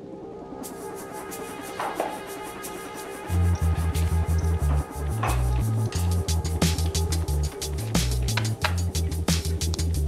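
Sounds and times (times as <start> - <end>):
steady percussive beat: 0.6 - 10.0
pulsing electronic bass line: 3.3 - 10.0.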